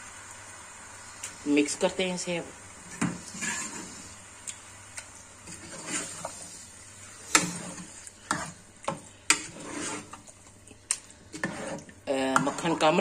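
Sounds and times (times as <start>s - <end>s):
light sizzle: 0.0s - 13.0s
metal spoon scraping a pot: 2.9s - 4.1s, 5.4s - 6.6s, 7.2s - 10.3s, 11.3s - 13.0s.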